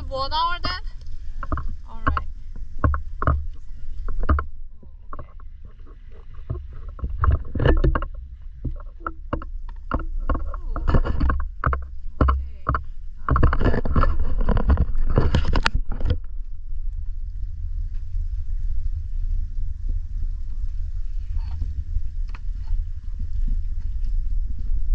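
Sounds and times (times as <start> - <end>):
water splashing: 0.0 - 17.1
steady low rumble: 0.0 - 24.9.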